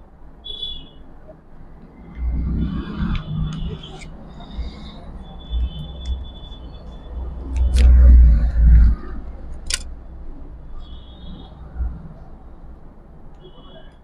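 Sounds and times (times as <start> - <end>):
sharp clicks: 9.5 - 10.0.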